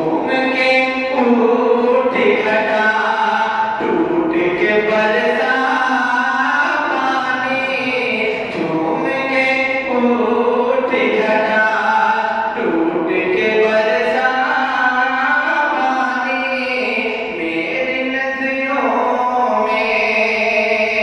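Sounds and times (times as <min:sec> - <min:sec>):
man singing unaccompanied: 0:00.0 - 0:21.0.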